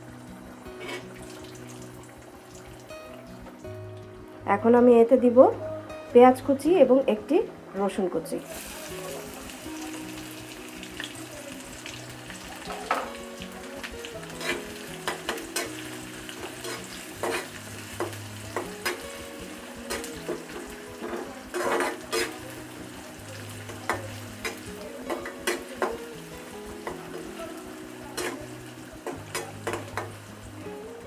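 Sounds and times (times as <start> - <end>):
onion sizzling in hot oil: 0.0 - 5.2, 8.3 - 31.0
spatula scraping pan: 0.8 - 1.1, 14.4 - 15.8, 16.4 - 19.0, 19.9 - 22.5.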